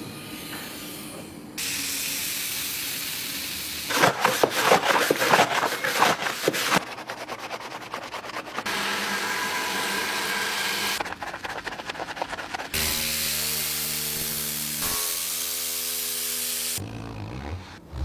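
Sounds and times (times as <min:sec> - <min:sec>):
sponge scrubbing plastic: 0:03.9 - 0:08.7, 0:11.0 - 0:13.2.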